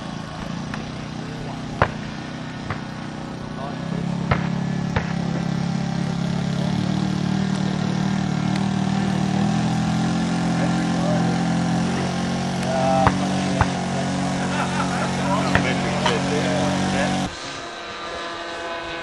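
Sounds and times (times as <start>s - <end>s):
model plane engine and propeller: 0.0s - 19.0s
sharp knocks: 13.0s - 13.8s.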